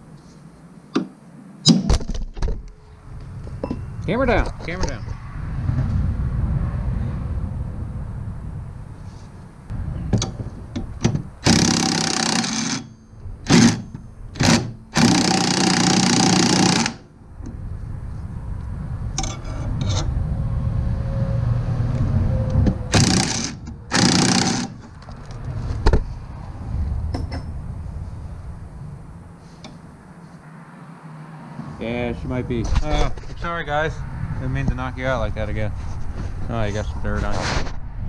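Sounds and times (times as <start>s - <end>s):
impact wrench firing: 11.4s - 12.9s, 13.5s - 17.0s, 22.9s - 24.8s.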